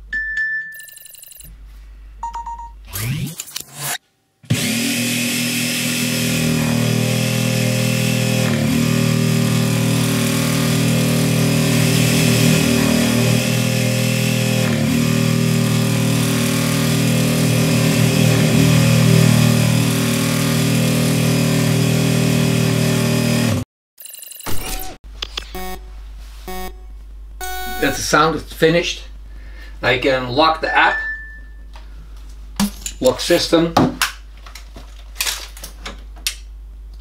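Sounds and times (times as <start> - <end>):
jigsaw cutting board: 2.9 - 23.6.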